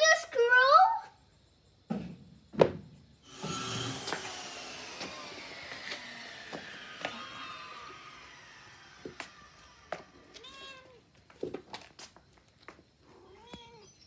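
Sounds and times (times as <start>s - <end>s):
passing motor whine: 3.2s - 10.4s.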